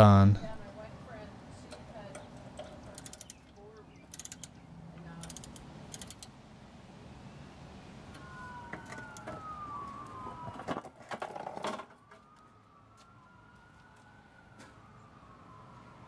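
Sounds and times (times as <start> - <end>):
distant siren wailing: 0.3 - 1.5, 7.8 - 16.0.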